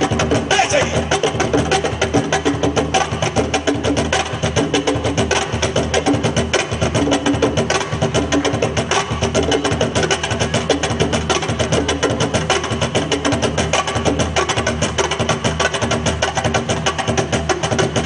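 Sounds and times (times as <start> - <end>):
percussion dance music: 0.0 - 18.0.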